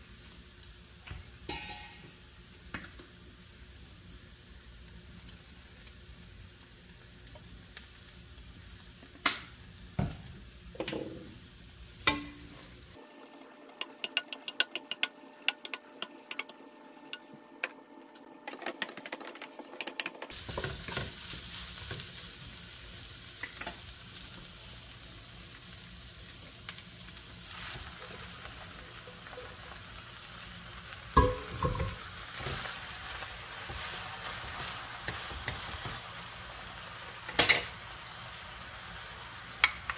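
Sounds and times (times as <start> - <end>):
food sizzling in frying pan: 0.0 - 39.9
spatula tapping pan: 13.8 - 17.3, 31.2 - 32.0.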